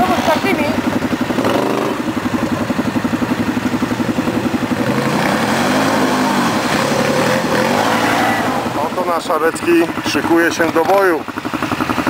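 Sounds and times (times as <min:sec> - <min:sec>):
quad bike engine revving: 0:00.0 - 0:12.0.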